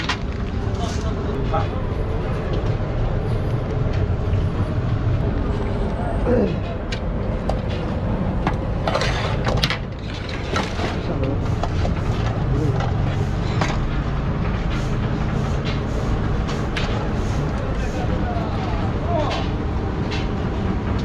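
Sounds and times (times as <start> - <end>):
low traffic rumble: 0.0 - 21.0
faint voices: 0.6 - 7.4, 10.6 - 14.1, 17.0 - 20.4.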